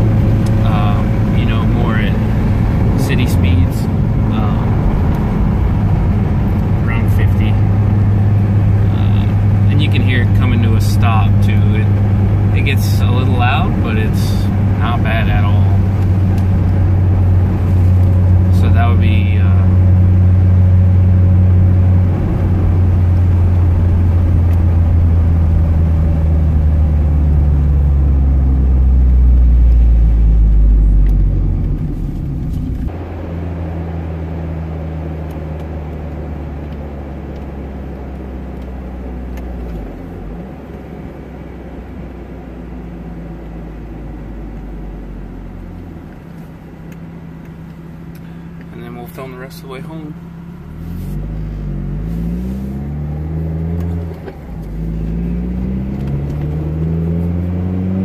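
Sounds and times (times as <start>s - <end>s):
car engine humming from cabin: 0.0s - 58.0s.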